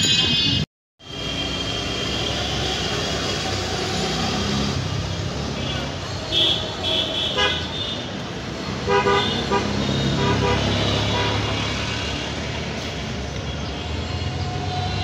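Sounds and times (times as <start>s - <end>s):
vehicle horn toots: 8.8s - 11.8s.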